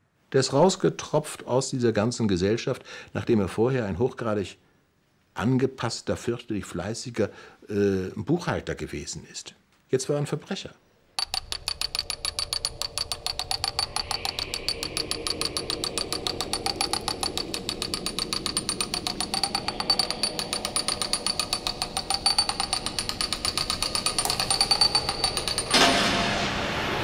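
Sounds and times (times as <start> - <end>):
ratchet clicking: 11.2 - 26.0.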